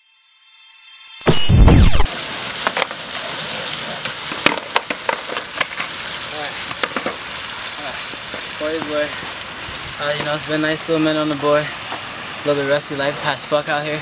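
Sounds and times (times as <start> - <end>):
loud low boom: 1.3 - 2.1
skateboard wheels rolling on asphalt: 2.1 - 14.0.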